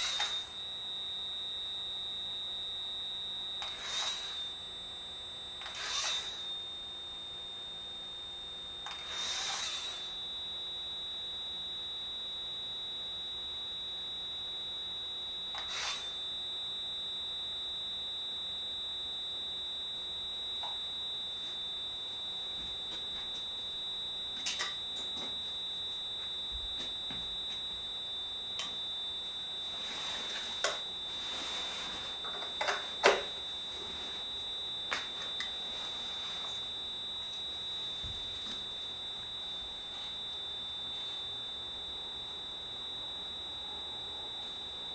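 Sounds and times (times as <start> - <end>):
high-pitched electronic tone: 0.0 - 0.6, 3.6 - 4.7, 5.6 - 6.9.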